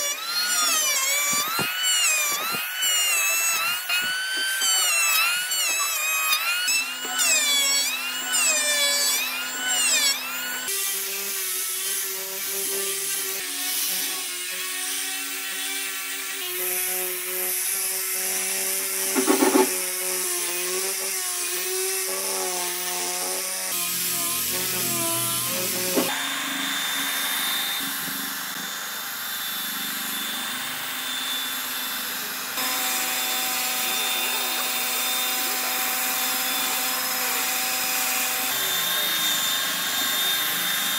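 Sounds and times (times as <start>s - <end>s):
power tools cutting wood: 0.0s - 40.9s.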